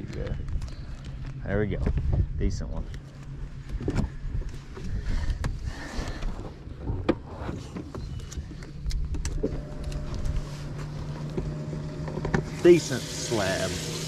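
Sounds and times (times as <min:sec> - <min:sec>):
electric motor humming: 0:08.2 - 0:14.0.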